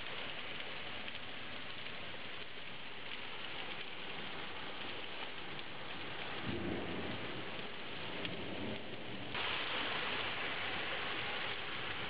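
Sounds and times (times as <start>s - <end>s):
heavy rain pouring: 0.0s - 12.0s
low rumble of thunder: 3.9s - 12.0s.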